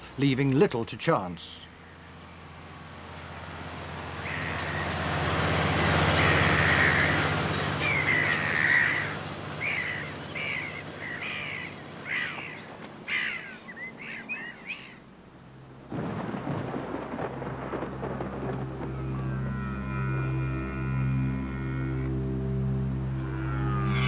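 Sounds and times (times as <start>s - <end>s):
tractor engine hum: 0.0s - 24.0s
gulls calling: 1.4s - 24.0s
thunder rumbling: 15.5s - 21.6s.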